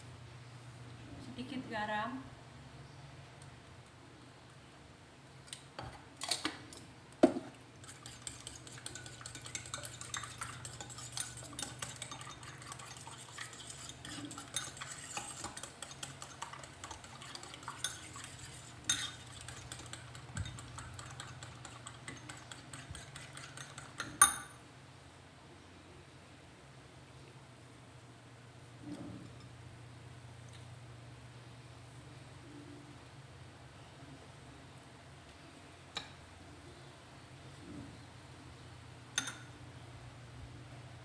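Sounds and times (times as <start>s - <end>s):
utensil beating eggs in bowl: 7.7s - 24.2s
spoon clinking against jar: 21.6s - 24.6s, 39.2s - 39.5s.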